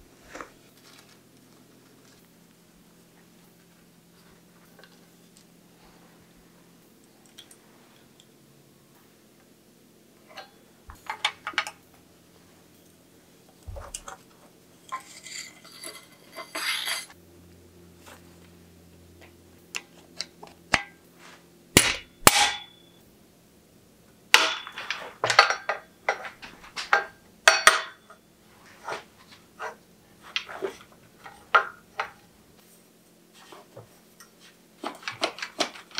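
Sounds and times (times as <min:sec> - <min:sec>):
metal parts clinking and knocking: 0:14.8 - 0:17.2, 0:24.4 - 0:28.2.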